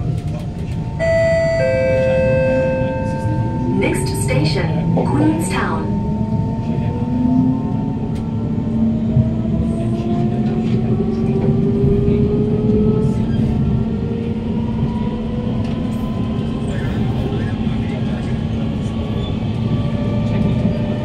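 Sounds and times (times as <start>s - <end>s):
train traction motors whining: 0.0s - 21.0s
wheels rumbling on track: 0.0s - 21.0s.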